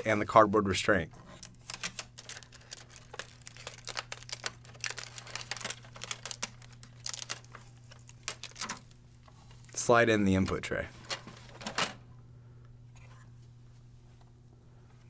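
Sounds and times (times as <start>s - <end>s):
cardboard crinkling and clicking: 1.4s - 9.8s
packing tape being peeled: 1.4s - 9.8s.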